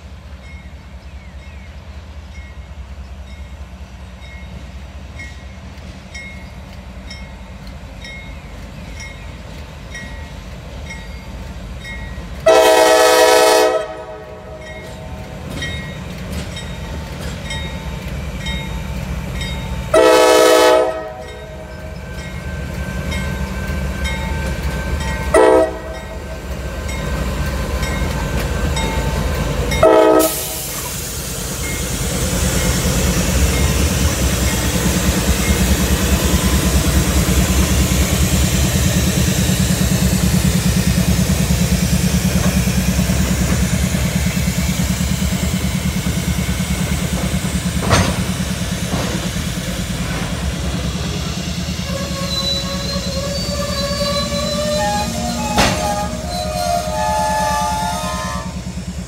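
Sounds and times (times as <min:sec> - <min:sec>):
diesel locomotive engine rumbling: 0:00.0 - 0:59.0
train horn blasts: 0:12.4 - 0:15.2, 0:19.9 - 0:21.6, 0:25.2 - 0:26.3, 0:29.8 - 0:30.7, 0:51.8 - 0:58.7
metal clank: 0:47.8 - 0:49.2, 0:55.5 - 0:56.0
thin wheel squeal: 0:51.2 - 0:58.4.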